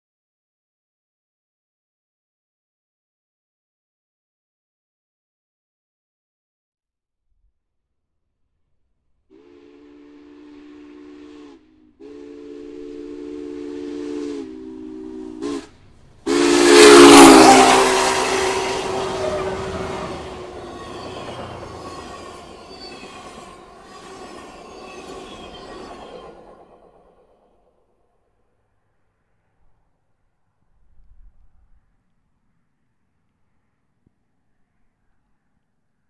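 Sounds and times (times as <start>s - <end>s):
steam locomotive chime whistle: 9.3s - 27.0s
train wheel clatter: 15.5s - 27.4s
passenger cars rumbling: 15.6s - 23.8s.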